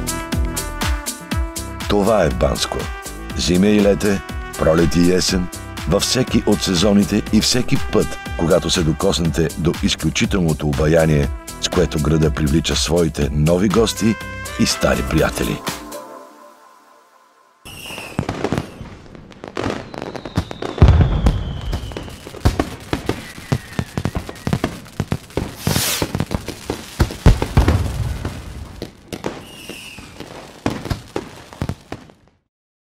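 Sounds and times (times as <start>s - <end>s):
falling whistle: 17.6s - 18.9s, 19.6s - 22.4s, 23.1s - 24.5s, 29.4s - 30.2s
fireworks booms: 17.7s - 32.5s
fireworks crackling and popping: 17.7s - 32.5s.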